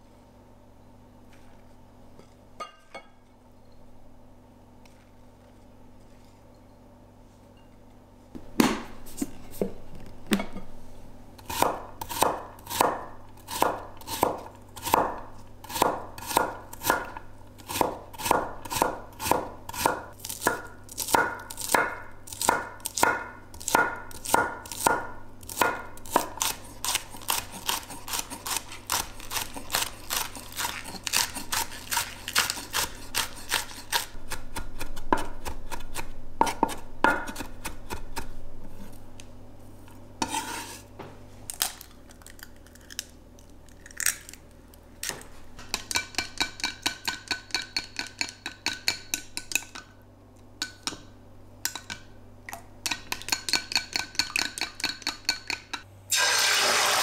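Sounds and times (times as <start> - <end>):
knife chopping on wooden board: 11.5 - 38.3.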